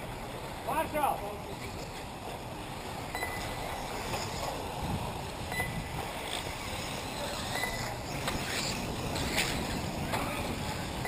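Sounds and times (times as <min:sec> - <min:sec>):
faint high beeps: 0:03.1 - 0:03.8, 0:05.5 - 0:05.8, 0:07.5 - 0:08.0
wind on microphone: 0:03.2 - 0:11.0.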